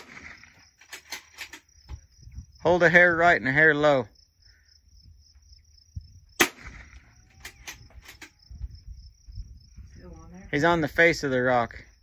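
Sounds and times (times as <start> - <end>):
rifle shot crack: 0.0 - 0.4, 6.4 - 7.0
high insect trill: 0.0 - 12.0.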